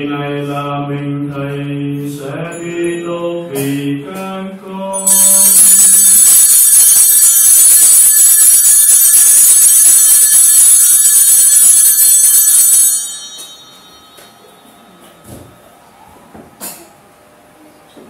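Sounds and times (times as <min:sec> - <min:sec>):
altar bells jangling: 0:05.0 - 0:15.0.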